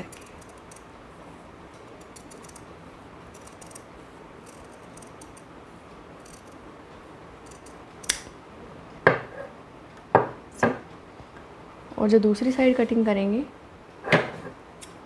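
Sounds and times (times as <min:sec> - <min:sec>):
sharp click: 0:07.5 - 0:08.3.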